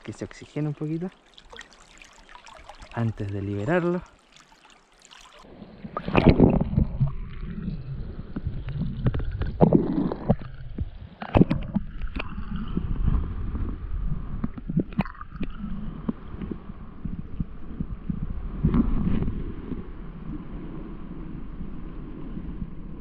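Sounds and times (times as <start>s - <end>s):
river water sloshing and splashing: 0.0s - 7.5s
steady low rumble: 12.4s - 23.0s.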